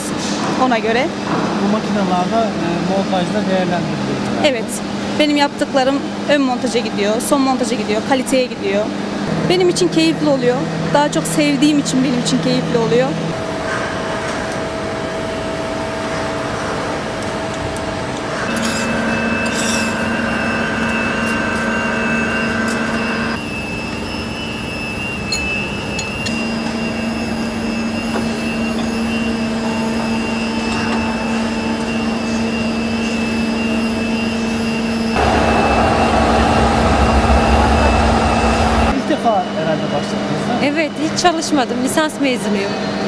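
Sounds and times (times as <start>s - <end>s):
high machine whine: 13.3s - 40.9s
milling machines humming: 14.5s - 23.5s, 26.1s - 39.0s.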